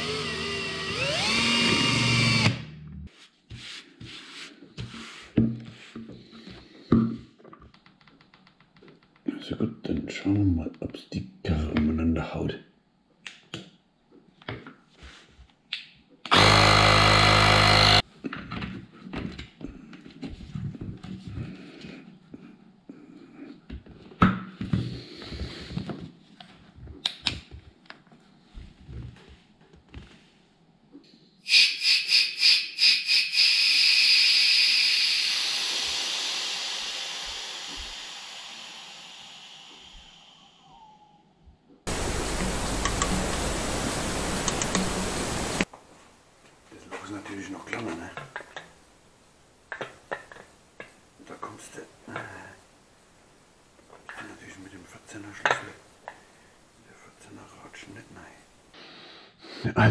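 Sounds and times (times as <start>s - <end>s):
air compressor running: 0.0s - 2.7s, 16.3s - 18.0s, 31.5s - 40.4s
foam sprayer hissing: 31.4s - 40.6s, 41.9s - 45.7s.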